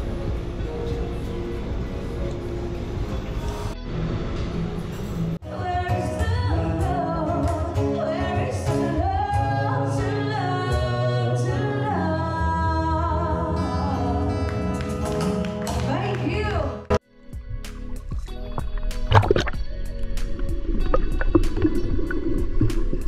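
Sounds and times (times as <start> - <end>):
guitar accompaniment: 0.0 - 23.0
woman singing into a microphone: 5.4 - 14.4.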